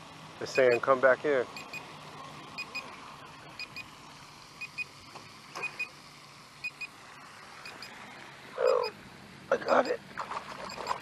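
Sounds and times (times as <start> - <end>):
high double beeps: 0.5 - 0.8, 1.6 - 1.8.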